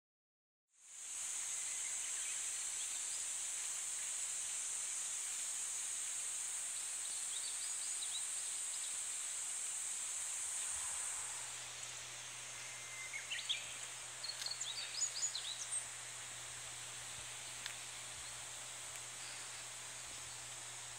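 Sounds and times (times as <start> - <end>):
cicadas chorus: 0.8 - 20.9
bird singing: 11.2 - 16.0, 19.1 - 20.6.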